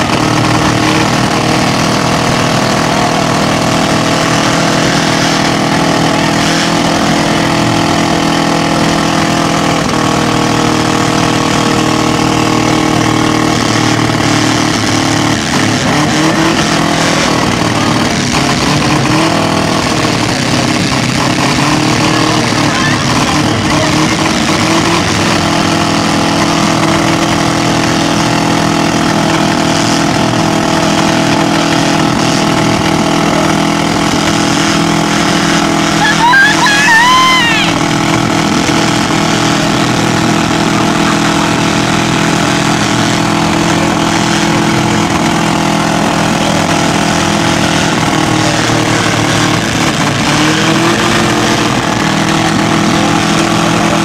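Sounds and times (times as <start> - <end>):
car engines droning: 0.0 - 54.0
brief rising whoop: 36.0 - 37.8.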